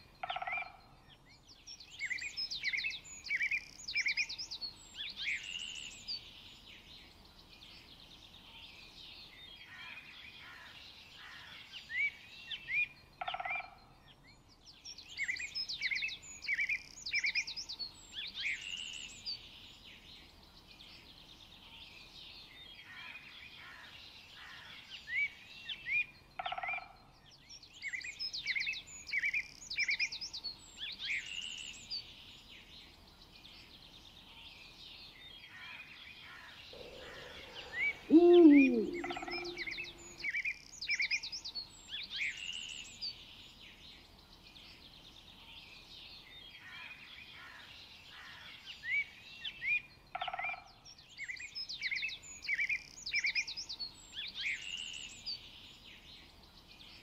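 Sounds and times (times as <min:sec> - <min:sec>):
birds chirping and trilling: 0:34.9 - 0:43.3
short low bird call: 0:36.8 - 0:40.3.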